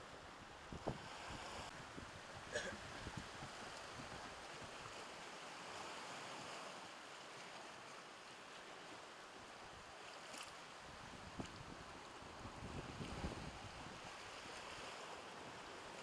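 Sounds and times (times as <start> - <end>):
surf washing on rocky shore: 0.1 - 16.0.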